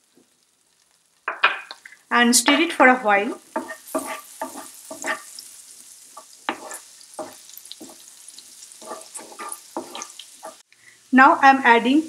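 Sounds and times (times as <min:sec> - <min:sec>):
garlic sizzling in butter: 0:00.0 - 0:12.0
wooden spoon scraping a pan: 0:02.4 - 0:10.6.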